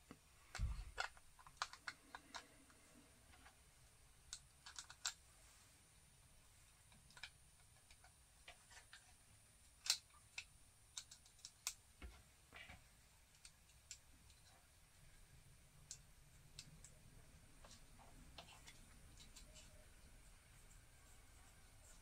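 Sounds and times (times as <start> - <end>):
plastic and metal parts clicking: 0.5 - 3.6, 4.3 - 5.2, 6.9 - 9.2, 9.8 - 11.8, 13.3 - 14.5.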